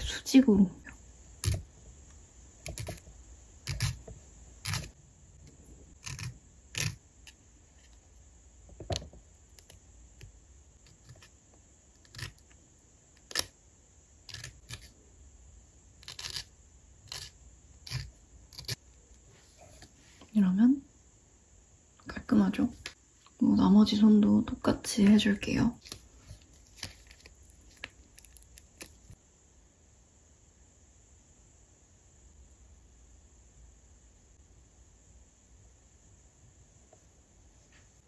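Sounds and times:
nail file scraping: 0:01.4 - 0:01.7, 0:02.6 - 0:05.0, 0:06.0 - 0:08.0, 0:10.8 - 0:11.4, 0:12.0 - 0:12.6, 0:13.2 - 0:13.5, 0:14.3 - 0:15.0, 0:16.0 - 0:18.8.

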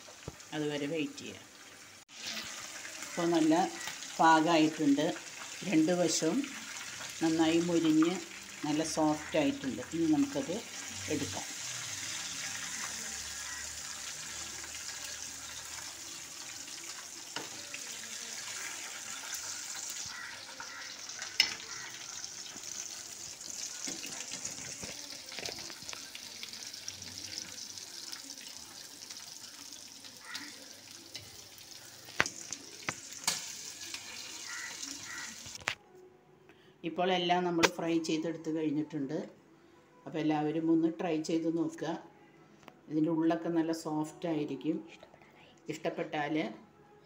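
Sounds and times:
meat sizzling in oil: 0:00.0 - 0:35.6.

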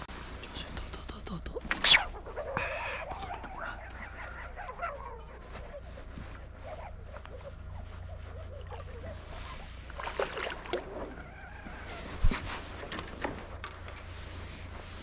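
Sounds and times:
fishing line whining under strain: 0:06.1 - 0:13.1.

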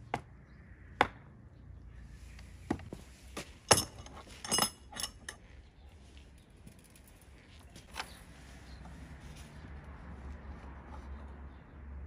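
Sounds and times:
metal hand tools clinking on wood: 0:03.6 - 0:05.5.

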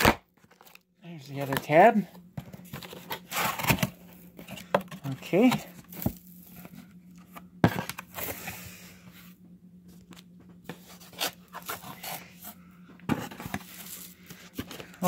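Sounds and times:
cardboard scraping and rustling: 0:01.4 - 0:08.6, 0:10.6 - 0:15.0.

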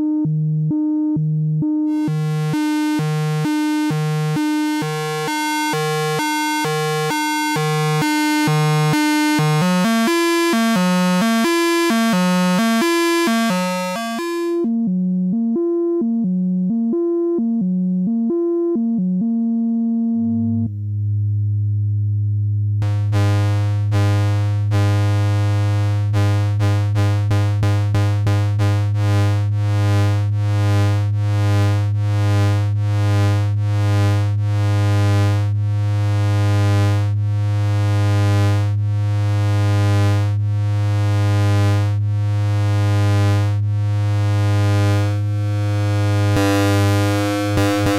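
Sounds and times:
electronic tone alternating two notes: 0:01.0 - 0:20.7, 0:44.2 - 0:47.9
bright buzzy pulsing tone: 0:01.7 - 0:14.8, 0:22.8 - 0:35.5, 0:39.5 - 0:47.9
steady low drone: 0:19.2 - 0:24.8, 0:43.6 - 0:47.9.

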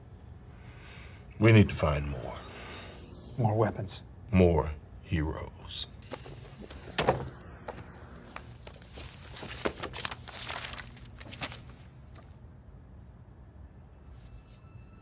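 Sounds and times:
papers rustling: 0:08.4 - 0:12.4.

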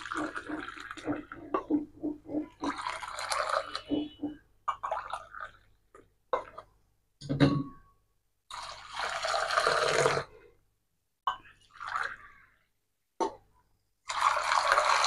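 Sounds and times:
milk pouring into steel bowl: 0:02.5 - 0:04.2, 0:08.5 - 0:10.4, 0:14.0 - 0:15.0.

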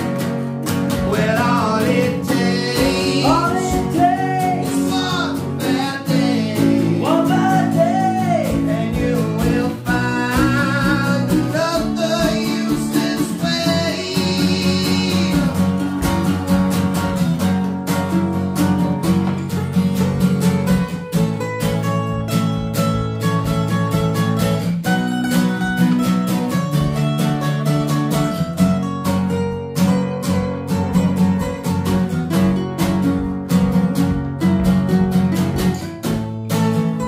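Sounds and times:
man singing: 0:00.0 - 0:16.2
acoustic guitars strumming: 0:00.0 - 0:37.0.

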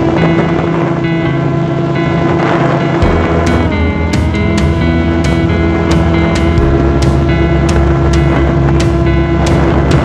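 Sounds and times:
sustained music chords: 0:00.0 - 0:10.0
sharp percussion hits: 0:03.0 - 0:10.0.

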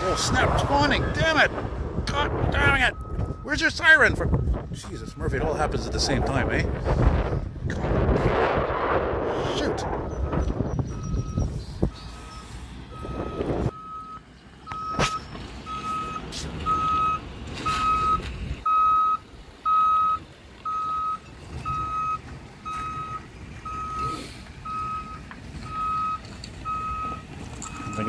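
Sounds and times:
reversing alarm beeping: 0:02.6 - 0:05.4, 0:10.2 - 0:28.0
truck engine running: 0:09.8 - 0:28.0.

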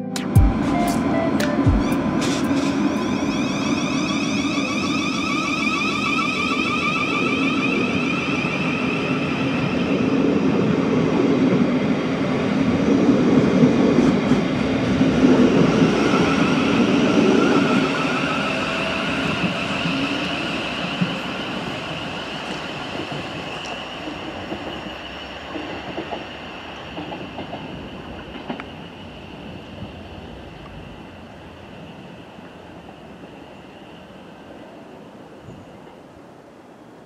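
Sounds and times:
train traction motor whine: 0:01.9 - 0:10.2.

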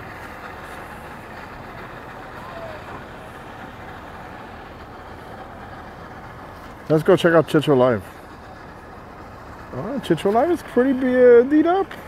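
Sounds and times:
vehicle and boat engine rumble: 0:00.0 - 0:12.0.

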